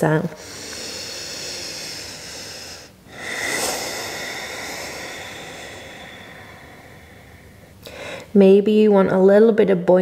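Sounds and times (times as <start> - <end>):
hissing breath through throat: 0.3 - 8.3.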